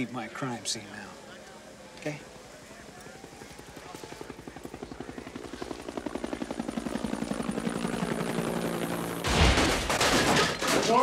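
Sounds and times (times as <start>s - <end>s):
helicopter rotor chopping: 0.0s - 10.2s
loud crash: 9.2s - 10.9s.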